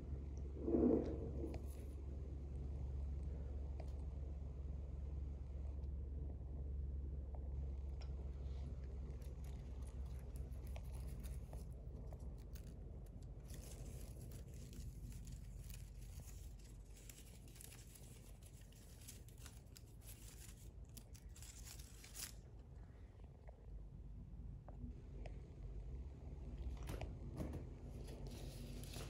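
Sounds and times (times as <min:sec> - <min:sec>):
plant leaves rustling and crackling: 0:08.4 - 0:22.7, 0:28.0 - 0:29.0.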